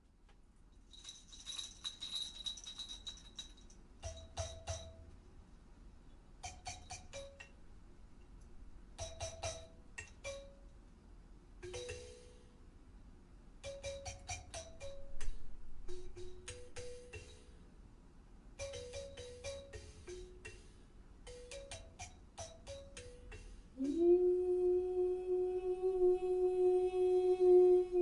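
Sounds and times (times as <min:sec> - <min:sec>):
jingling rattle: 0:00.8 - 0:05.0
kalimba plucked notes: 0:11.6 - 0:12.4, 0:13.6 - 0:17.5, 0:18.6 - 0:20.7, 0:21.3 - 0:23.5.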